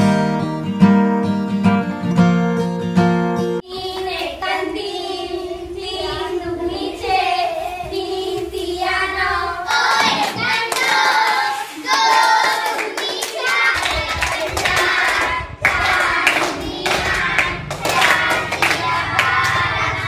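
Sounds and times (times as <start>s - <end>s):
strummed acoustic guitar music: 0.0s - 3.6s
girls singing together: 3.6s - 20.0s
hand clapping: 9.8s - 19.6s.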